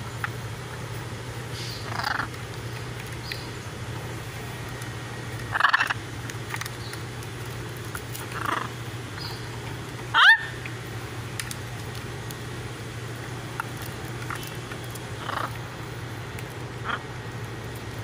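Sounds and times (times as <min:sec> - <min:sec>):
macaws squawking: 0:01.6 - 0:02.4, 0:05.5 - 0:06.0, 0:08.2 - 0:09.4, 0:10.1 - 0:10.6, 0:15.2 - 0:15.6, 0:16.8 - 0:17.1.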